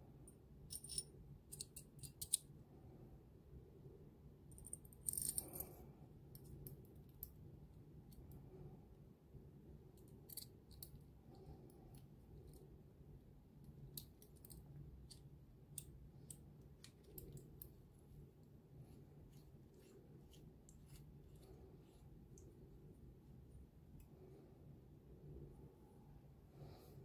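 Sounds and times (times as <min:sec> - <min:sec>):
pen parts scraping and clicking: 0:00.7 - 0:02.5.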